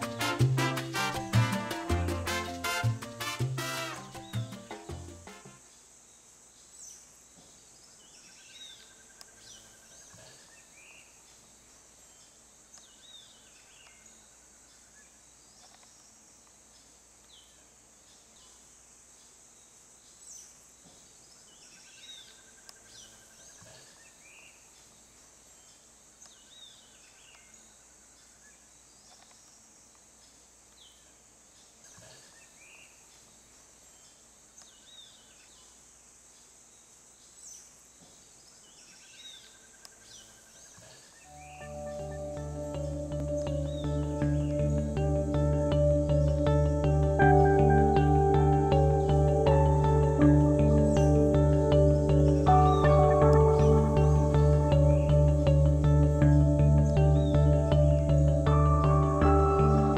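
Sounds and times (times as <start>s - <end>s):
bird chirps and trills: 38.8s - 59.9s.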